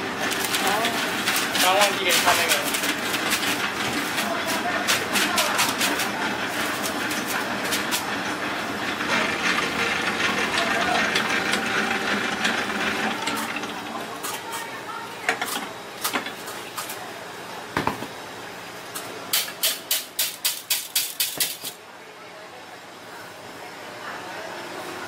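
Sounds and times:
stand mixer running: 0:00.0 - 0:14.2.

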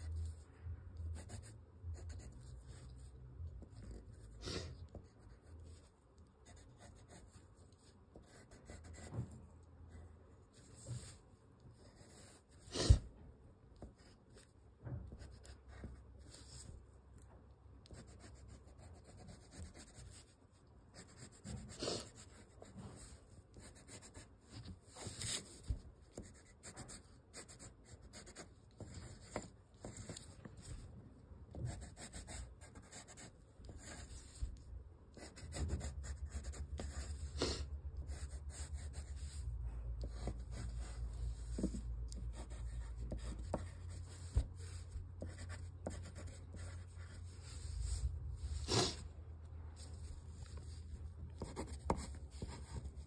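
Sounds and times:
crayon scratching on paper: 0:01.1 - 0:03.0, 0:06.4 - 0:09.2, 0:17.9 - 0:20.3, 0:21.0 - 0:30.3, 0:31.7 - 0:34.4, 0:35.2 - 0:39.4, 0:40.0 - 0:49.0, 0:51.4 - 0:53.0
low steady rumble: 0:33.6 - 0:53.0.

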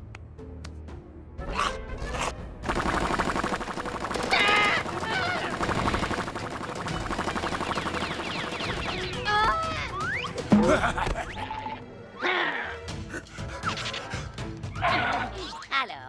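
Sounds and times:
background music: 0:00.0 - 0:16.0
rapid machine-gun rattle: 0:02.7 - 0:09.3.

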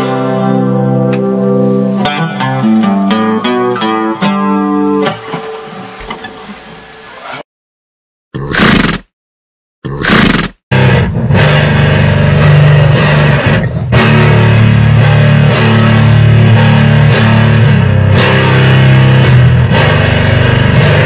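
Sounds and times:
rock music with electric guitar: 0:00.0 - 0:06.4, 0:10.7 - 0:21.0.

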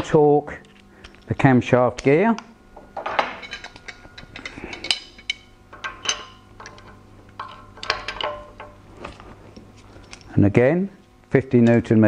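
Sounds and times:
steel tools clinking: 0:02.8 - 0:08.8.

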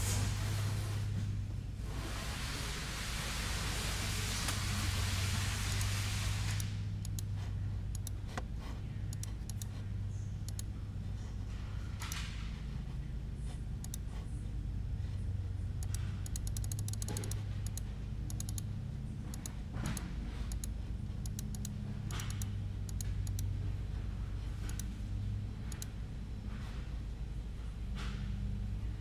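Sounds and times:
steady low hum: 0:00.0 - 0:29.0
mouse and keyboard clicks: 0:05.7 - 0:05.9, 0:06.5 - 0:10.7, 0:12.0 - 0:12.4, 0:13.7 - 0:14.3, 0:15.8 - 0:18.7, 0:19.3 - 0:23.5, 0:24.6 - 0:24.9, 0:25.7 - 0:26.0.

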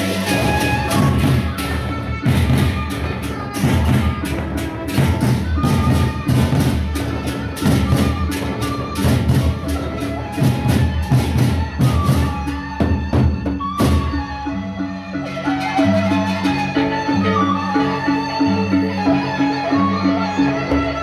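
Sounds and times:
barrel drums beaten fast: 0:00.0 - 0:14.2.

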